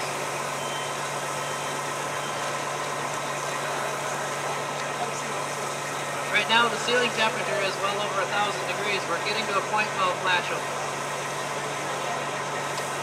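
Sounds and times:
steady engine-like drone: 0.0 - 13.0.

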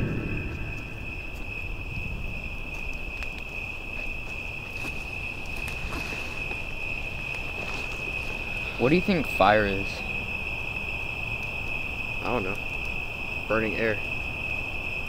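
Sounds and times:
low rumble: 0.0 - 3.7
crickets trilling: 0.0 - 15.0.

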